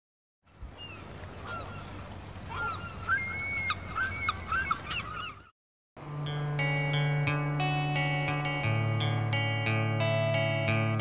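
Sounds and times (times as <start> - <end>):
birds calling: 0.5 - 5.5.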